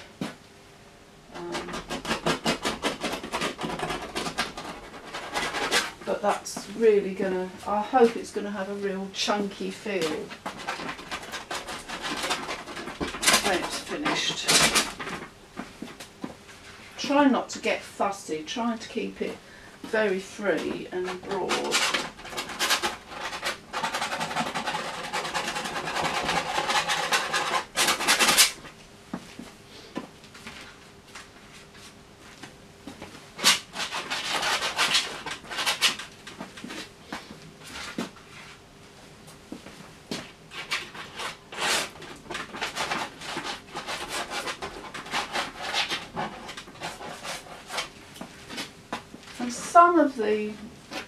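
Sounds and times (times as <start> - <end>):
palette knife scraping paint: 1.4 - 6.7, 9.2 - 15.2, 20.2 - 28.6, 33.4 - 36.0, 40.5 - 47.9.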